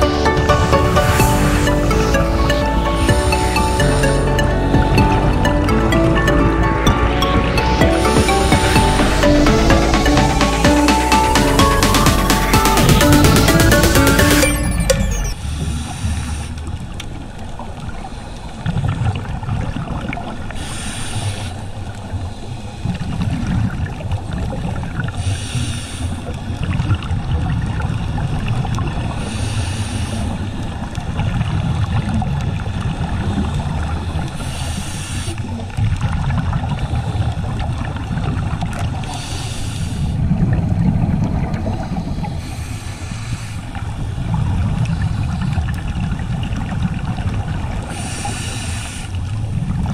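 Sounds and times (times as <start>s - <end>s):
low underwater rumble: 0.0s - 12.2s.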